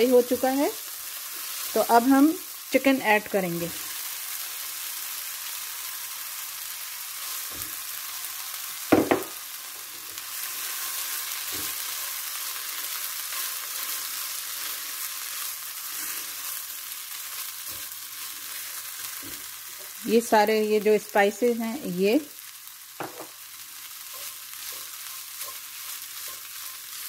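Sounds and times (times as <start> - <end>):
food sizzling in a frying pan: 0.0 - 27.0
spatula knocking on pan: 8.9 - 9.4, 23.0 - 23.4.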